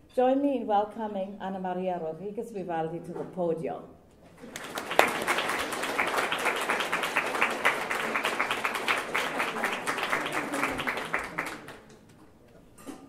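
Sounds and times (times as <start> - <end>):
audience applauding: 4.4 - 12.2.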